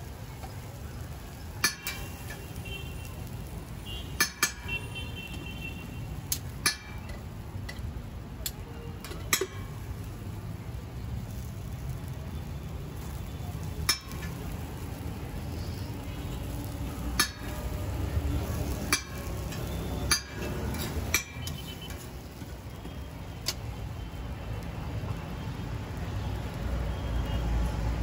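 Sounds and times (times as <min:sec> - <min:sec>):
metal spatula scraping griddle: 0:16.8 - 0:22.5.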